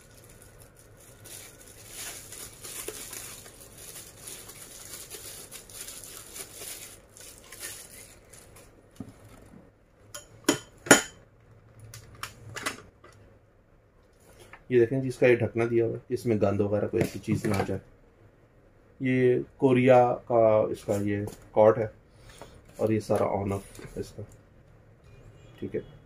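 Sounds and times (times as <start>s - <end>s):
plastic packaging rustling: 0.0s - 9.5s.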